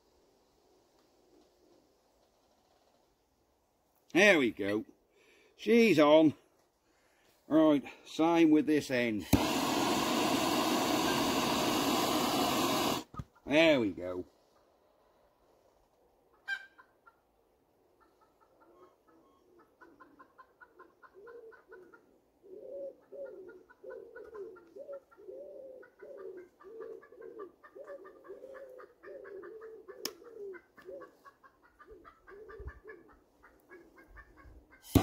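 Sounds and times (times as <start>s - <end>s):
chickens clucking: 16.2s - 35.0s.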